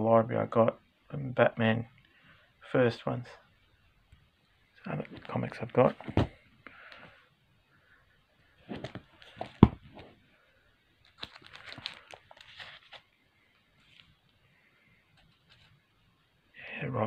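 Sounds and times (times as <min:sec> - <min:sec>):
plastic sleeves crinkling: 0:11.0 - 0:14.4.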